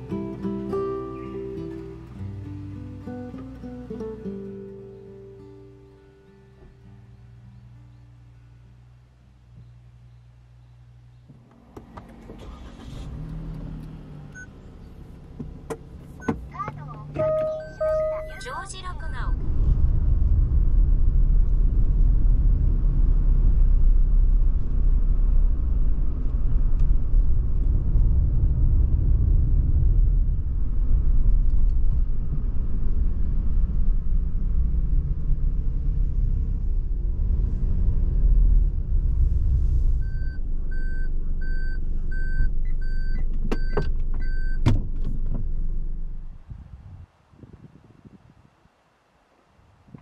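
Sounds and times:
car driving road noise: 0.0 - 47.4
reversing warning beeps: 17.2 - 19.2, 40.0 - 44.6.

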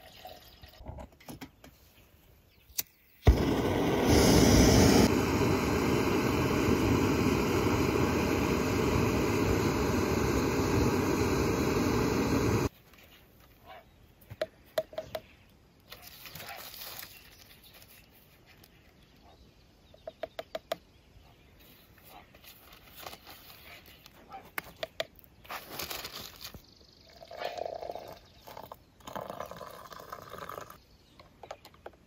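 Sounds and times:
loud steady rushing noise: 3.3 - 12.7.

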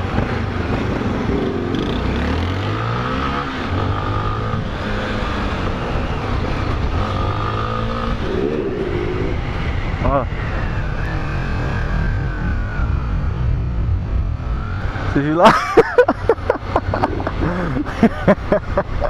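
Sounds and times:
wind noise on microphone: 0.0 - 2.6, 3.8 - 15.2
motorcycle engine revving: 0.0 - 15.3.

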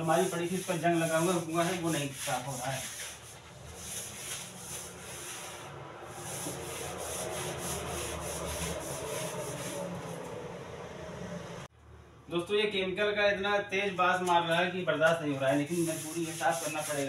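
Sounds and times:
scrubbing brush on wet tiles: 0.0 - 10.5, 15.3 - 17.0.

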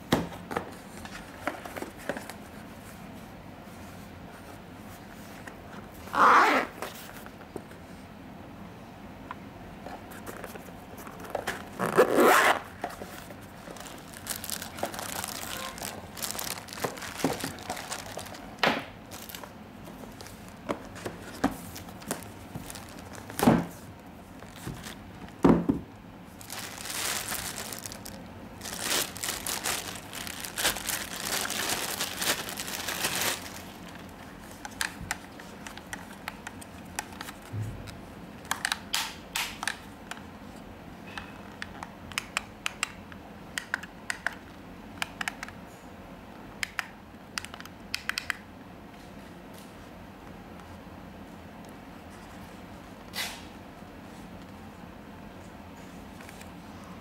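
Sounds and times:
packaging rustling and crinkling: 10.2 - 25.4, 26.3 - 37.6.

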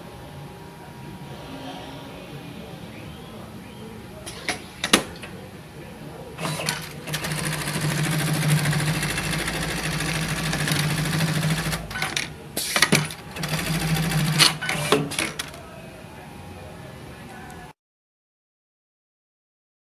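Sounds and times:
sewing machine stitching: 6.4 - 15.5.

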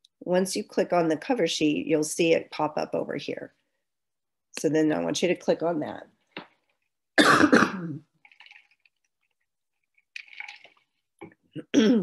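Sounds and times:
faint small sounds: 5.9 - 7.1, 7.9 - 12.0
person coughing: 7.2 - 8.0.

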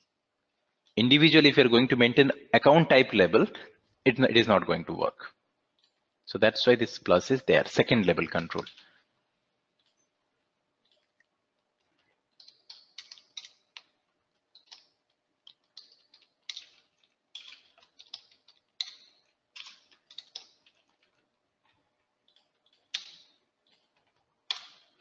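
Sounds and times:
computer keyboard typing: 14.5 - 21.2.

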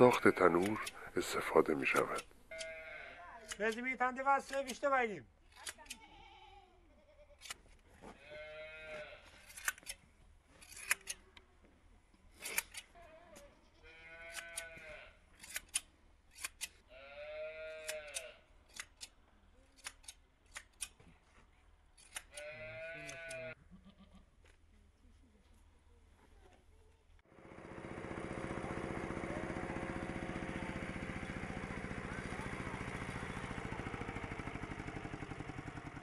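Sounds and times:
goat bleating: 0.0 - 3.7, 5.7 - 9.4, 12.9 - 15.2, 16.9 - 18.5, 22.2 - 24.3
shear blades snipping: 0.1 - 1.1, 1.7 - 2.8, 3.4 - 4.9, 5.5 - 6.0, 7.4 - 7.6, 9.4 - 10.0, 10.6 - 11.2, 12.4 - 13.0, 14.3 - 14.8, 15.4 - 16.8, 17.8 - 21.0, 22.0 - 23.5.

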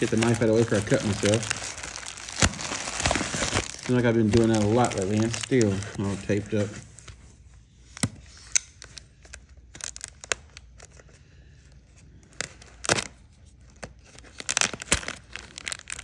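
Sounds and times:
plastic film snapping: 0.0 - 5.8, 13.8 - 16.0
plastic packaging crinkling: 0.0 - 7.1, 8.8 - 11.0, 13.8 - 16.0.

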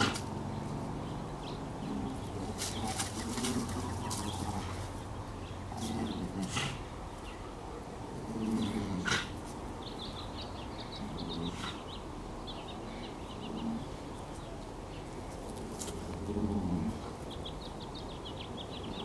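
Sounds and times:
small birds chirping: 0.0 - 19.0
dogs growling: 1.8 - 7.0, 8.1 - 9.5, 16.0 - 17.2.

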